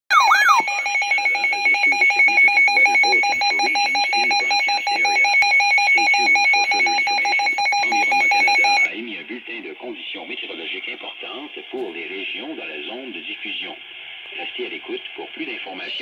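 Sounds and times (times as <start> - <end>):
warbling chirp: 0.1 - 1.6
pulsing electronic alarm tone: 0.1 - 8.9.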